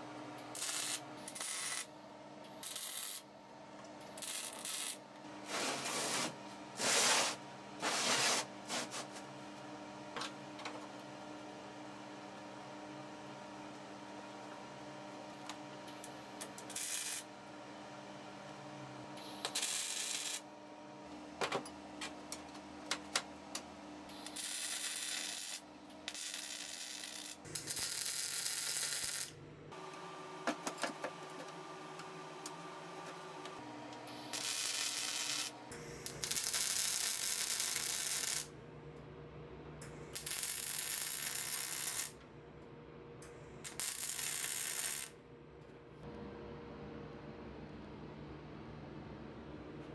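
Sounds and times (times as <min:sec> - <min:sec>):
welder arc crackling: 0:00.0 - 0:01.9, 0:02.5 - 0:03.3, 0:04.0 - 0:07.4, 0:15.3 - 0:17.3, 0:19.2 - 0:20.4, 0:23.5 - 0:29.3, 0:34.1 - 0:38.5, 0:40.1 - 0:42.2, 0:43.6 - 0:45.1.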